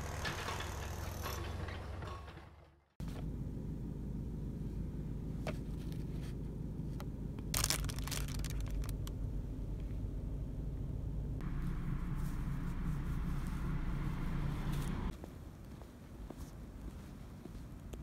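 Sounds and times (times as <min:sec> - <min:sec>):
steady low rumble: 0:03.0 - 0:15.2
packaging rustling: 0:07.6 - 0:09.1.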